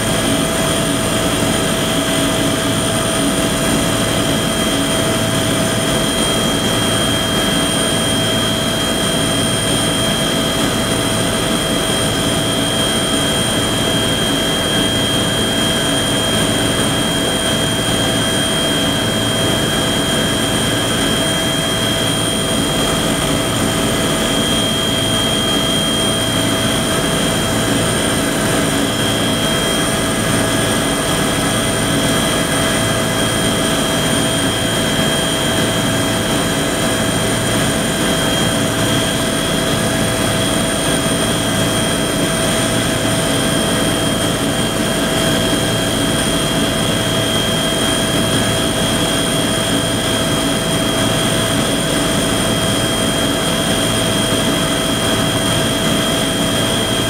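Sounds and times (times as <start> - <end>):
helicopter engine and rotor drone: 0.0 - 57.0.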